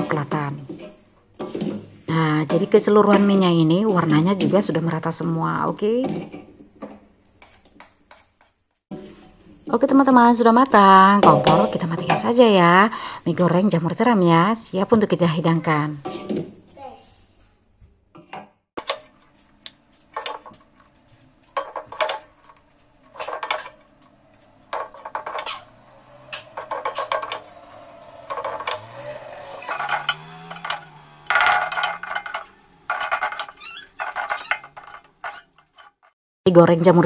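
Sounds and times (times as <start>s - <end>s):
wooden spatula clattering on a wok: 20.1s - 20.8s, 21.5s - 24.1s, 24.7s - 29.0s, 29.6s - 36.1s.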